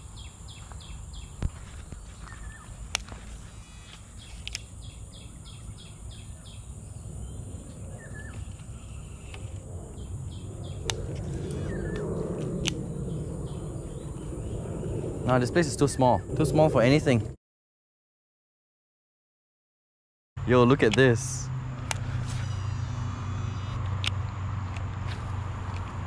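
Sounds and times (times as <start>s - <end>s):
rapid pulsed insect calls: 0.0s - 16.2s, 21.7s - 25.7s
high insect drone: 0.0s - 17.0s, 20.6s - 26.0s.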